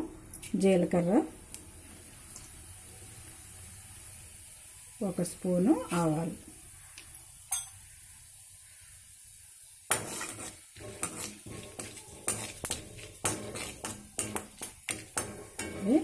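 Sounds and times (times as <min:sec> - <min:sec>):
spices sizzling in oil: 0:00.0 - 0:16.0
metal spoon scraping a pan: 0:09.9 - 0:16.0.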